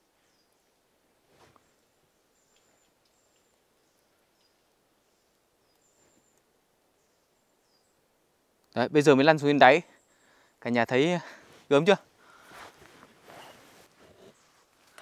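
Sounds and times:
faint high bird calls: 1.6s - 8.0s.

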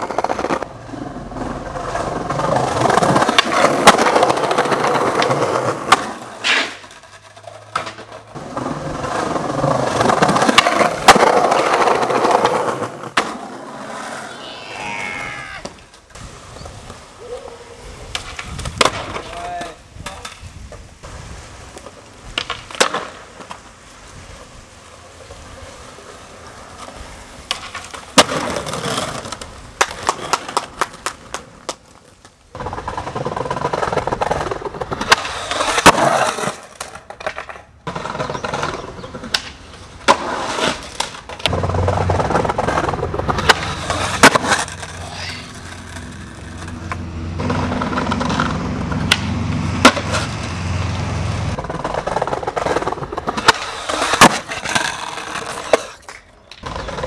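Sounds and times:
skateboard pops and clacks: 0.0s - 13.9s, 16.8s - 20.9s, 21.7s - 23.7s, 26.8s - 50.4s, 51.6s - 57.0s
skateboard wheels rolling on concrete: 0.0s - 57.0s.

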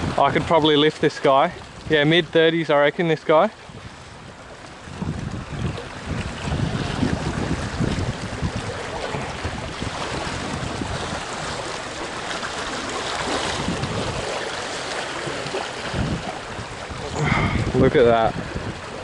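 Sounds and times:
wind buffeting microphone: 0.0s - 19.0s
sea waves splashing on rocks: 4.5s - 19.0s.

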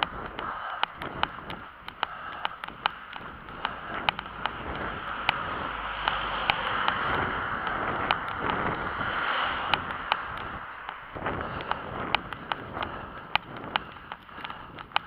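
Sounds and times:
footsteps on asphalt: 0.0s - 15.0s
wind rumbling on microphone: 0.0s - 15.0s
van driving past: 3.1s - 12.8s.

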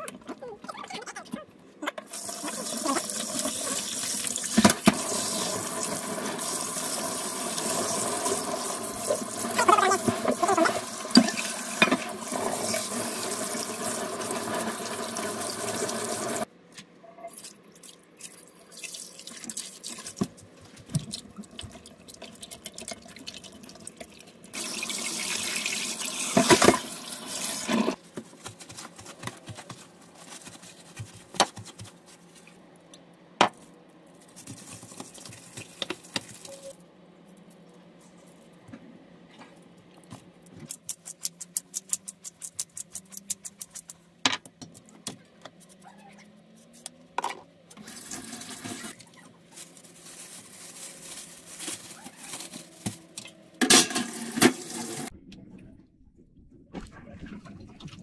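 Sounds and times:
tap water running into sink: 2.1s - 16.5s, 21.0s - 28.0s
hands washing chicken: 17.4s - 32.4s, 34.2s - 36.8s.

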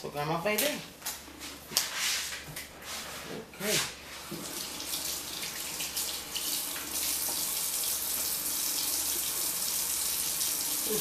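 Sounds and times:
tap water running into sink: 4.3s - 11.0s.

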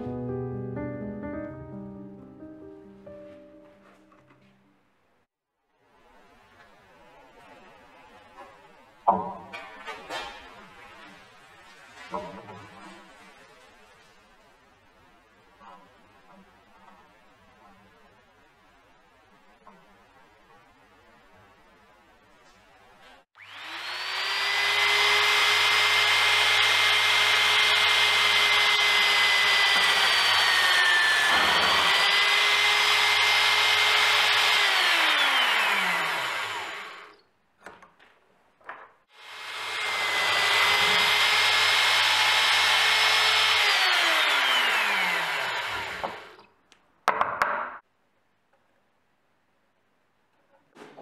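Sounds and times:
drill press whining: 23.4s - 37.2s, 39.2s - 46.4s.

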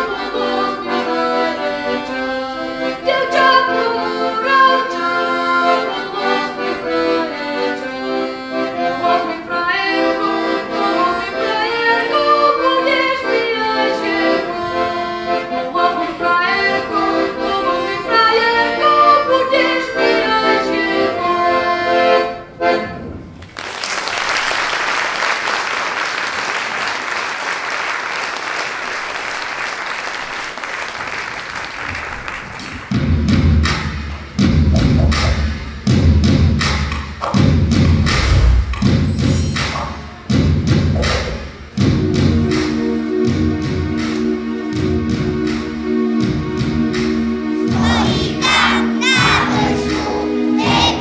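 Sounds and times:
accordion playing tune: 0.0s - 23.2s, 38.1s - 51.0s
applause: 23.4s - 32.9s
low thumps: 32.9s - 44.0s.

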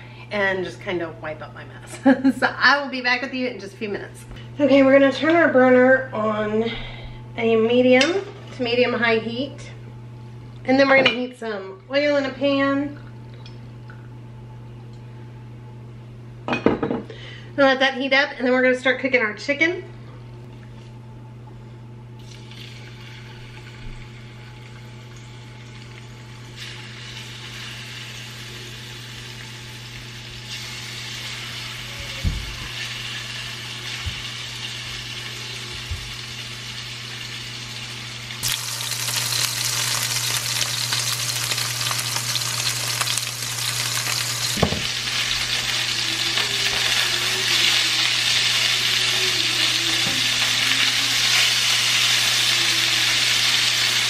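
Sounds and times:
chicken sizzling in oil: 22.4s - 54.0s.

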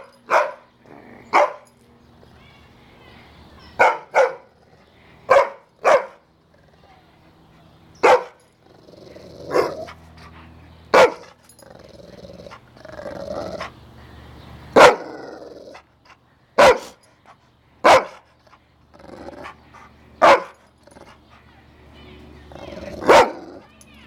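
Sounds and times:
dog barking: 0.0s - 0.7s, 1.3s - 1.6s, 3.8s - 4.5s, 5.3s - 6.2s, 8.0s - 8.4s, 10.9s - 11.4s, 14.8s - 15.1s, 16.6s - 17.0s, 17.8s - 18.2s, 20.2s - 20.6s, 23.0s - 23.5s
dog growling: 0.8s - 1.4s, 6.4s - 7.0s, 8.6s - 10.4s, 11.6s - 13.7s, 15.0s - 15.9s, 18.4s - 21.2s, 22.5s - 23.7s.

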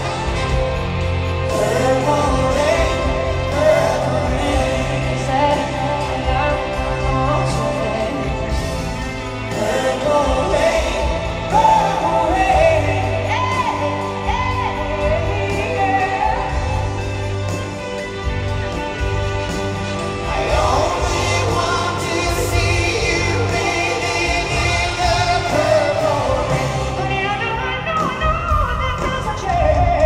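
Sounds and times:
live band playing: 0.0s - 30.0s
woman singing: 1.5s - 8.5s, 9.5s - 17.0s, 26.9s - 30.0s.

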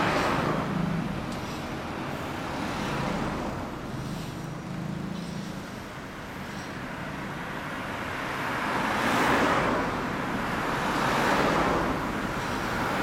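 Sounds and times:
cars passing: 0.0s - 13.0s.

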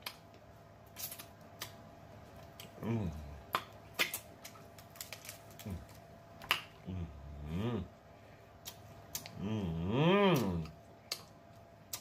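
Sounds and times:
sucking and chewing crab legs: 2.4s - 6.9s
person humming: 2.7s - 3.4s, 6.8s - 8.0s, 9.2s - 10.8s.

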